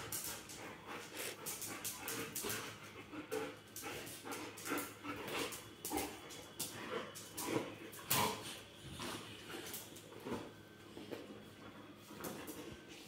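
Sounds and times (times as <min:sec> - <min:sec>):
dogs vocalizing while playing: 0:00.0 - 0:10.7.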